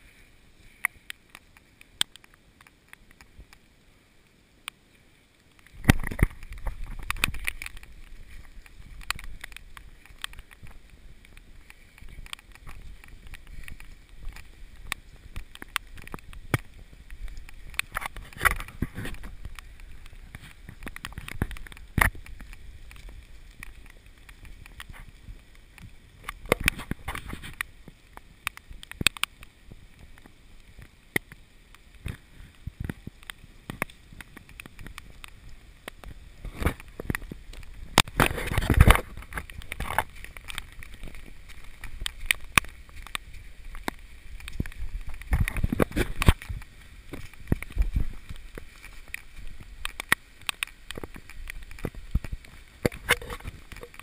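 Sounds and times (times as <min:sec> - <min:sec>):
camera handling rumble: 0:05.7 - 0:10.8, 0:36.0 - 0:54.0.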